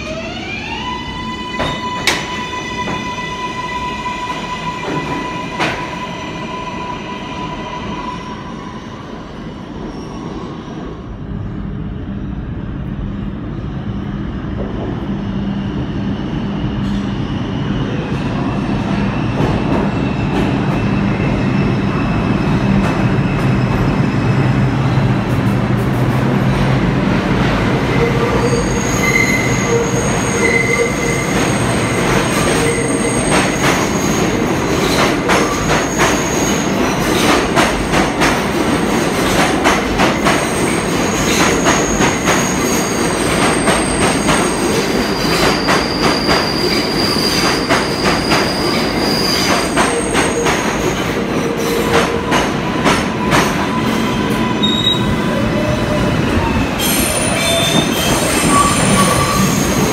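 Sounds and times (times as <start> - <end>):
train wheels rumbling on rails: 9.1 - 59.9
high wheel squeals: 53.8 - 55.8, 56.8 - 59.9.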